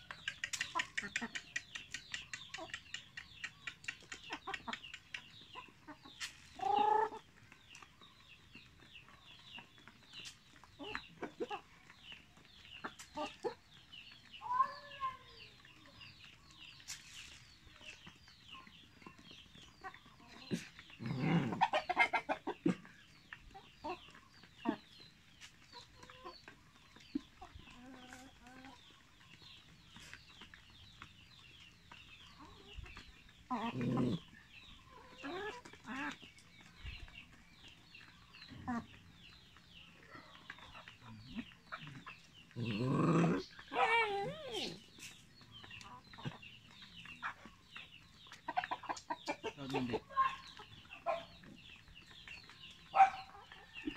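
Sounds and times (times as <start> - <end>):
beaks pecking the ground: 0.0 - 53.9
chickens clucking: 0.0 - 53.9.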